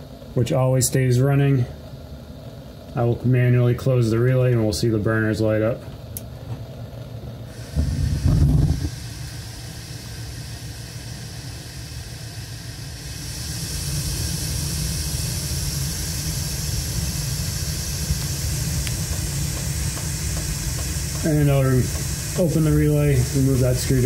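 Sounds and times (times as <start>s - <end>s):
burners rumbling and hissing: 0.1s - 24.0s
gas burners lighting: 7.5s - 24.0s.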